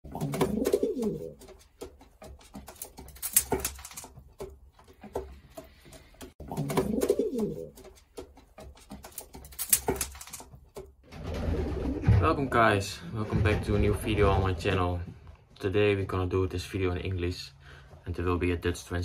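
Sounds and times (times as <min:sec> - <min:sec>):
pigeons cooing: 0:00.1 - 0:01.4, 0:06.4 - 0:07.8.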